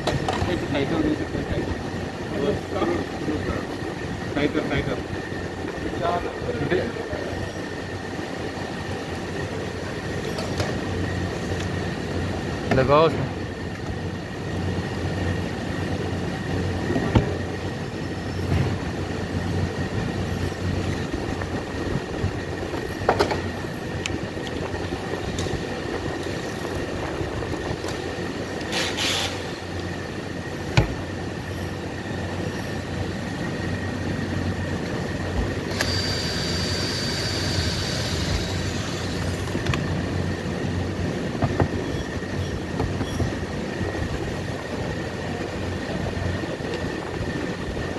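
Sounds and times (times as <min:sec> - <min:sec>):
workshop hum with high tone: 0:00.0 - 0:47.9
hiss with high whine: 0:35.7 - 0:39.6.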